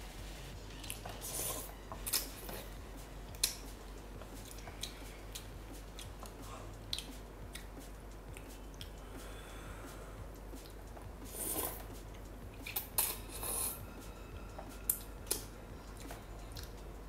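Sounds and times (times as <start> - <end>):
wet chewing: 0.8 - 2.7.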